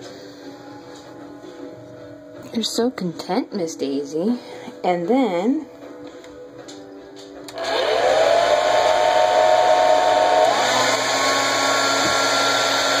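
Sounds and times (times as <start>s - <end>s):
hair dryer switch click: 7.5s - 7.8s
hair dryer blowing: 7.5s - 13.0s.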